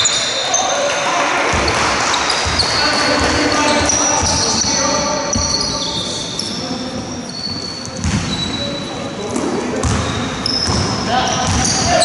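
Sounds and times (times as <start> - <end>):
shoe squeaks: 0.0 - 1.0, 1.6 - 12.0
voices echoing: 0.0 - 12.0
basketball bouncing on hardwood: 1.5 - 4.6, 8.0 - 8.3, 9.8 - 11.8.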